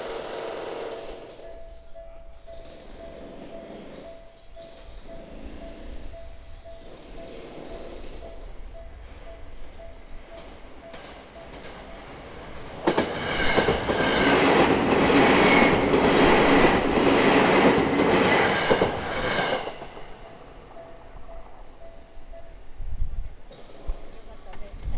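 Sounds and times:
electric train passing: 0:00.0 - 0:24.9
wheels clattering over rail joints: 0:10.4 - 0:20.5.

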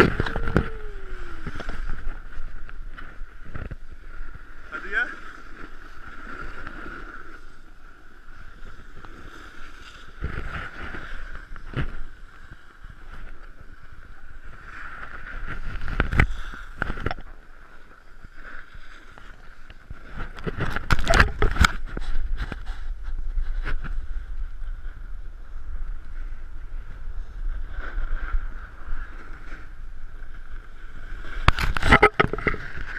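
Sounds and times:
wind rushing over microphone: 0:00.0 - 0:05.1, 0:19.8 - 0:32.9
snowboard scraping packed snow: 0:00.0 - 0:32.9.

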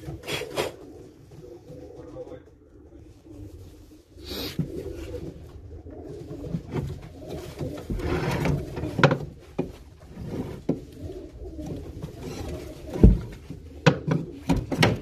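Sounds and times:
pigeons cooing: 0:00.0 - 0:15.0
knocks and bumps: 0:06.3 - 0:15.0.

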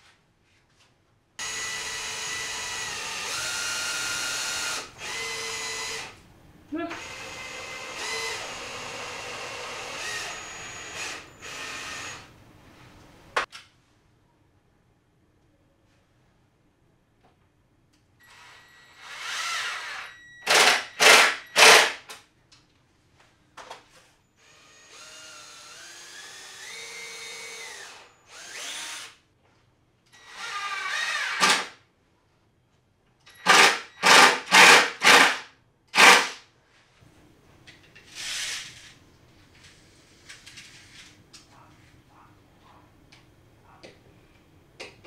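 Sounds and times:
cordless drill driving screws: 0:01.4 - 0:06.2, 0:06.9 - 0:12.3, 0:18.3 - 0:22.0, 0:24.4 - 0:29.2, 0:30.2 - 0:31.7, 0:33.3 - 0:35.4, 0:36.0 - 0:36.4.

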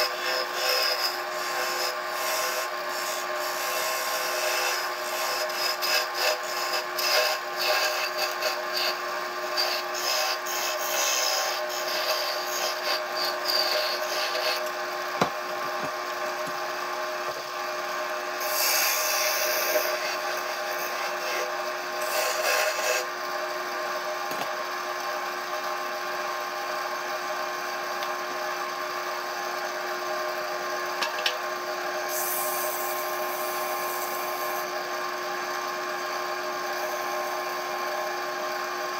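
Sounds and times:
wood lathe motor hum: 0:00.0 - 0:38.9
sanding pad rubbing wood: 0:09.6 - 0:14.7.

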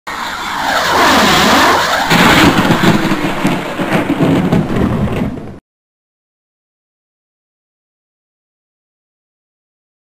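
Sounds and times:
swooshing pitch sweep: 0:00.1 - 0:05.3
choppy crackling rumble: 0:00.5 - 0:05.6.

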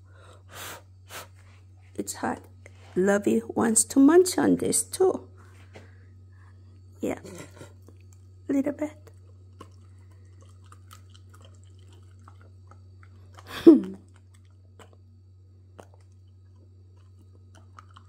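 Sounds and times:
steady low hum: 0:00.0 - 0:18.0
chewing crispy rice: 0:07.2 - 0:18.0.

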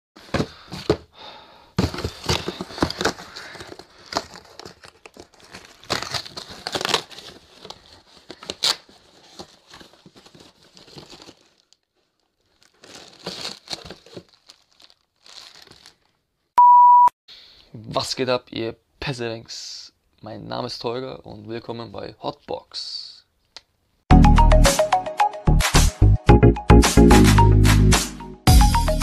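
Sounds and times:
cardboard parcel tearing: 0:01.8 - 0:16.1
packaging crinkling and rustling: 0:01.8 - 0:16.2.

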